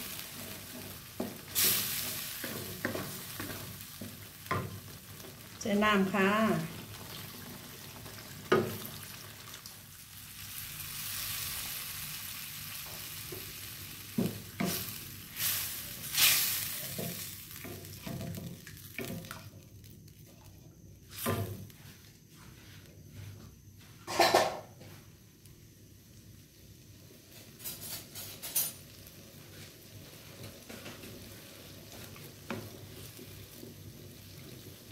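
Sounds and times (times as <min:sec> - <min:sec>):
water hissing in hot sauce: 0:00.0 - 0:04.3, 0:14.4 - 0:19.6
wooden spatula scraping pan: 0:00.0 - 0:05.3.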